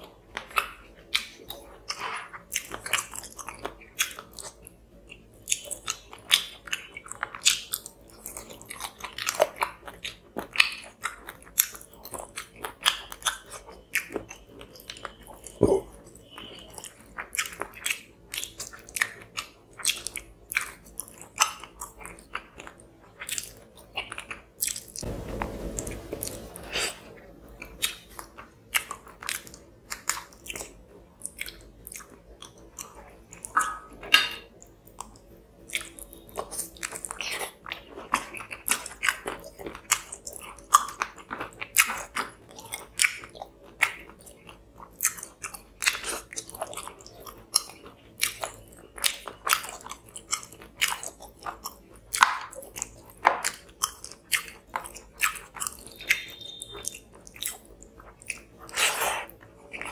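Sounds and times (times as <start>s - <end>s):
person chewing food: 0.0s - 25.1s, 26.7s - 59.9s
rushing noise: 25.0s - 27.5s.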